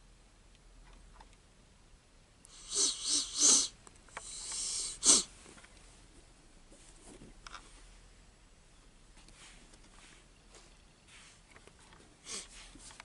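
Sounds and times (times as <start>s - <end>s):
hissing breath: 2.5s - 5.3s, 12.2s - 12.8s.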